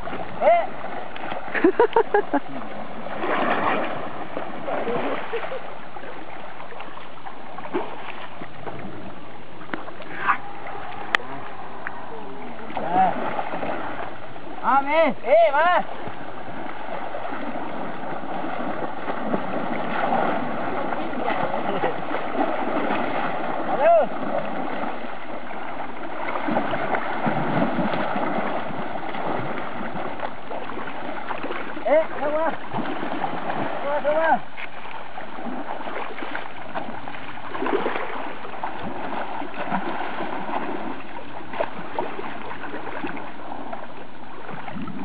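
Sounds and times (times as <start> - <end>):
elephants splashing: 0.0 - 45.0
river water rushing: 0.0 - 45.0.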